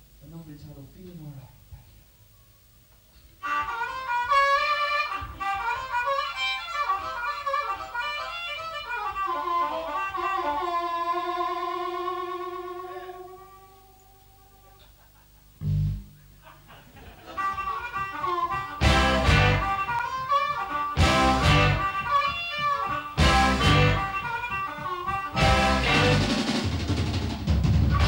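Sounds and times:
amplified harmonica bending notes: 0:03.4 - 0:14.7, 0:15.6 - 0:16.3, 0:17.3 - 0:26.6.

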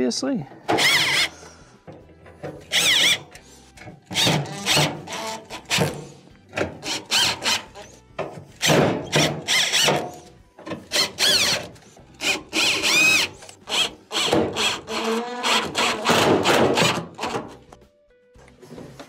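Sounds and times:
cordless drill whining: 0:00.7 - 0:01.5, 0:02.7 - 0:03.5, 0:06.8 - 0:08.0, 0:09.1 - 0:10.2, 0:10.9 - 0:16.1.

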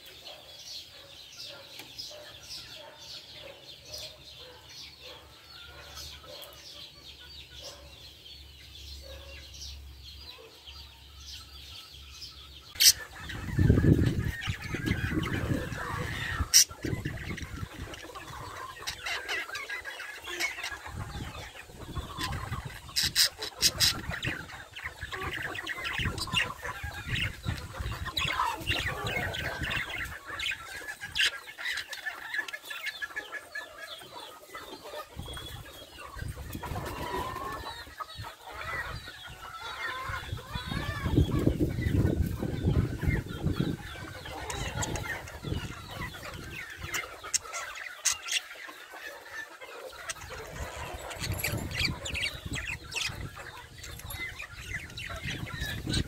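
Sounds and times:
budgerigars chattering: 0:12.1 - 0:56.0.

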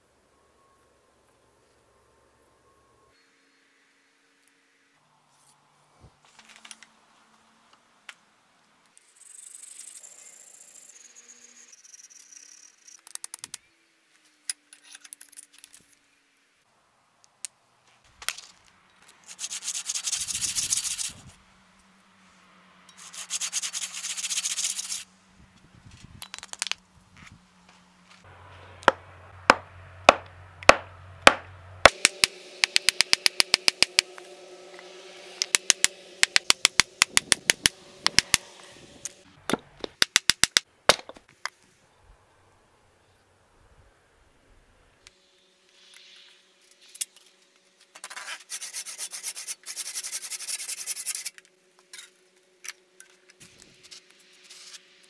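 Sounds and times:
sanding strokes: 0:19.2 - 0:21.4, 0:23.0 - 0:25.1, 0:48.1 - 0:51.3
loud sharp knocks: 0:28.9 - 0:34.1.

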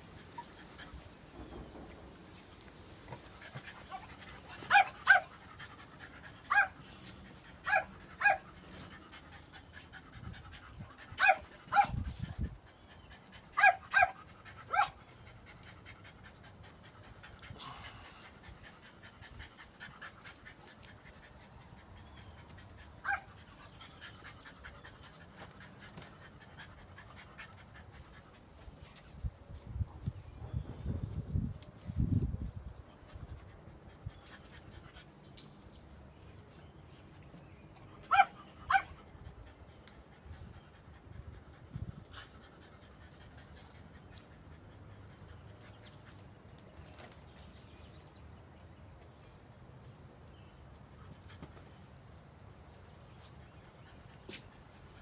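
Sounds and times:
puppy yipping: 0:38.1 - 0:38.9.

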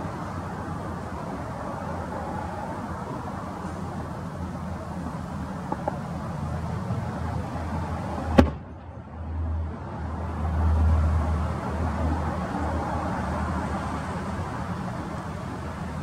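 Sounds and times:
firework shell bang: 0:08.4 - 0:08.7.

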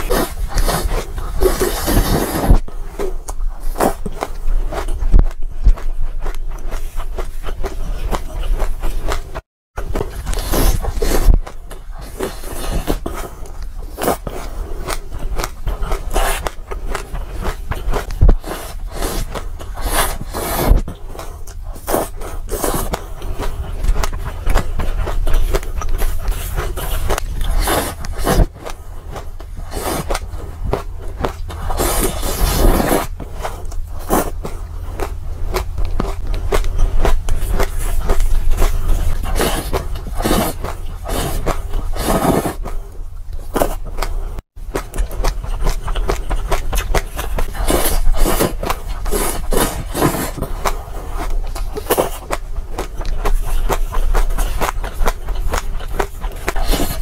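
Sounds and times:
crunching and chewing seeds: 0:00.0 - 0:57.0.

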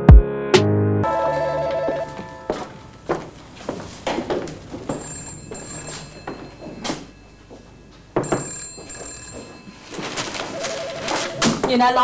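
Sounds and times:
electric bell ringing: 0:01.0 - 0:02.9, 0:04.7 - 0:11.5.

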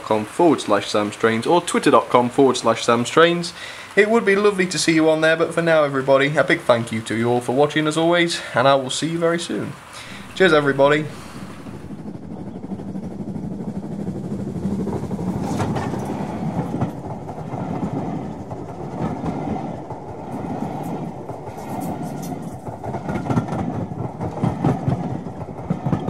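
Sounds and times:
train rumble: 0:00.0 - 0:26.0
train wheels clattering: 0:09.5 - 0:26.0.

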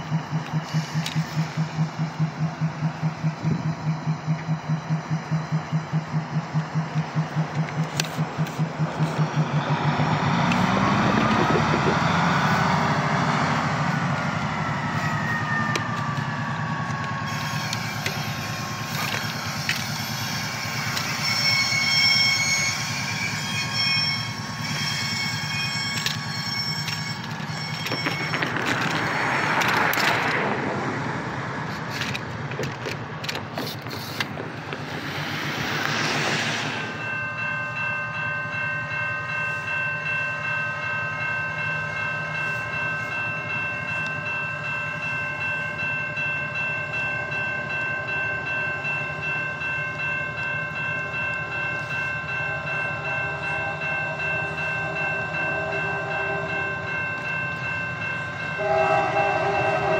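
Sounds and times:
wheels squealing on rails: 0:00.0 - 0:30.7, 0:31.6 - 0:38.7
diesel locomotive running: 0:00.0 - 0:59.9
locomotive air horn chord: 0:52.5 - 0:56.9, 0:58.6 - 0:59.9.

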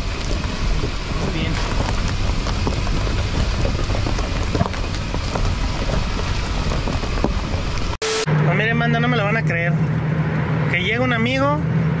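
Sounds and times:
vehicle driving over dirt: 0:00.0 - 0:08.6
knocks and rattles: 0:00.3 - 0:08.0.

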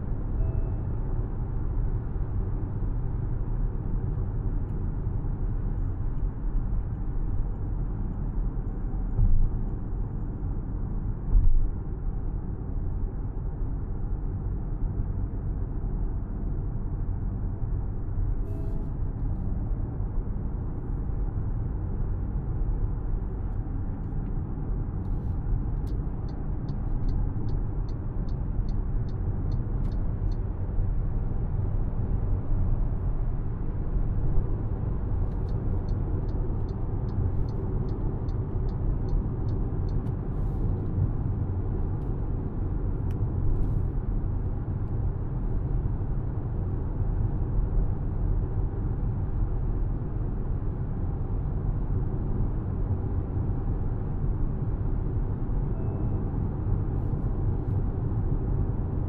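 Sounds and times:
car road and engine rumble: 0:00.0 - 0:59.0
turn signal ticking: 0:25.8 - 0:30.5, 0:35.2 - 0:40.4.

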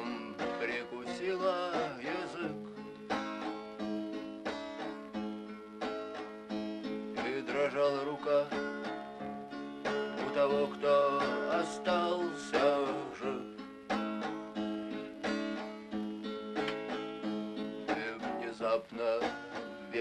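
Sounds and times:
man singing: 0:00.0 - 0:02.6, 0:07.2 - 0:09.0, 0:10.1 - 0:13.6, 0:17.9 - 0:20.0
strummed acoustic guitar: 0:00.0 - 0:20.0.

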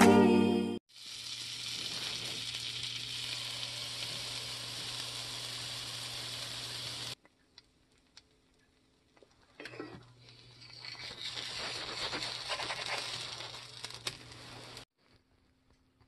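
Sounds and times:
butter sizzling in a skillet: 0:00.9 - 0:08.9, 0:10.2 - 0:14.9.

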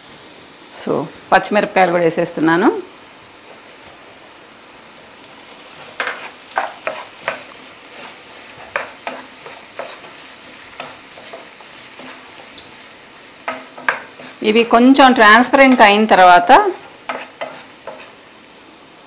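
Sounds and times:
onions sizzling in hot oil: 0:00.0 - 0:19.0
wooden spatula scraping a pan: 0:05.5 - 0:18.3.

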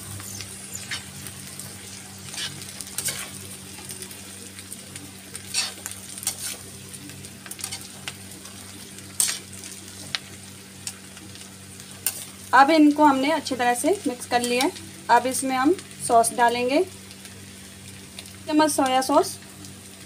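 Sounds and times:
vegetables sizzling in a pan: 0:00.0 - 0:20.0
spatula scraping a metal pan: 0:02.3 - 0:03.4, 0:05.5 - 0:06.6.

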